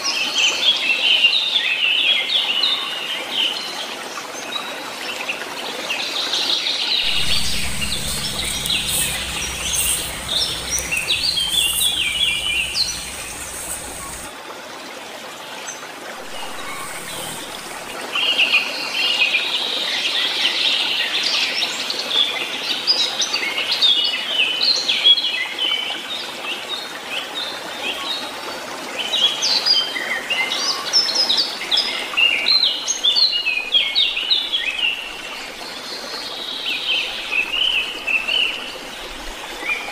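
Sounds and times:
birds chirping: 7.0s - 14.3s, 16.2s - 18.0s
low rumble: 7.0s - 14.3s, 16.2s - 18.0s
outdoor background noise: 7.0s - 14.4s, 16.1s - 18.1s.

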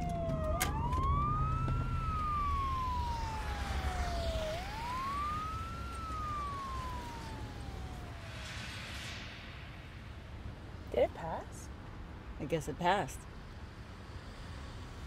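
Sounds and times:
emergency siren wailing: 0.0s - 9.0s.

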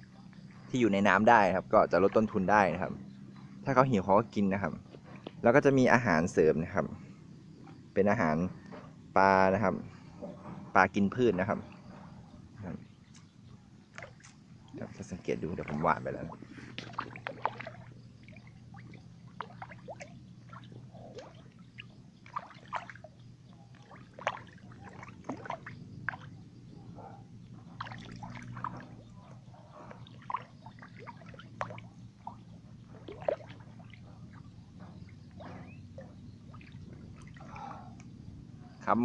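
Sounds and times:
fish splashing at water surface: 13.9s - 26.3s, 27.8s - 29.2s, 29.9s - 34.5s, 35.9s - 37.8s.

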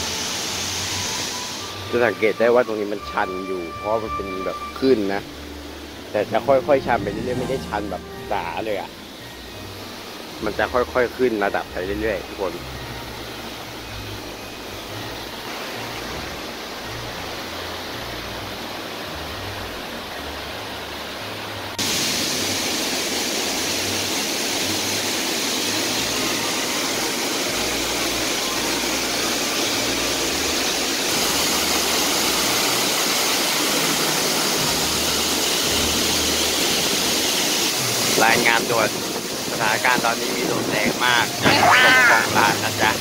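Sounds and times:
waterfall crashing onto rocks: 21.8s - 43.0s.

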